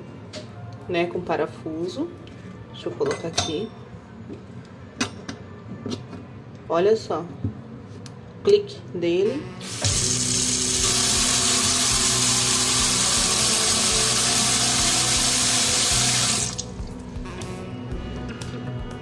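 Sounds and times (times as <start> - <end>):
background music with steady tones: 9.1 - 19.0
tap water running into sink: 9.6 - 17.0.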